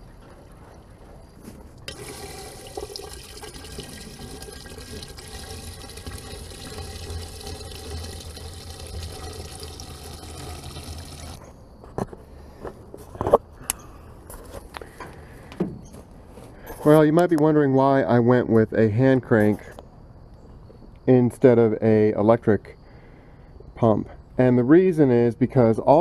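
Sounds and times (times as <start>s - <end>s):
fuel pouring into tank: 1.8s - 11.4s.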